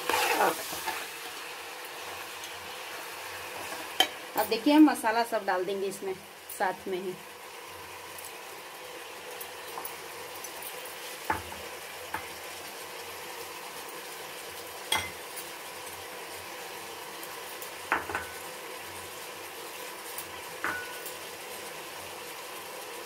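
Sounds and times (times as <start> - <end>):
meat and onions sizzling in oil: 0.0 - 23.0
glass bowls clinking against pot: 14.9 - 15.2.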